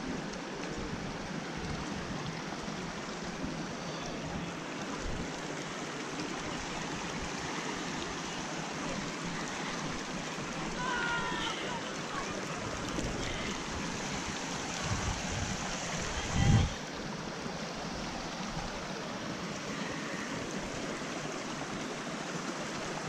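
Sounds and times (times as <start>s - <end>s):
water running over rocks: 0.0s - 23.0s.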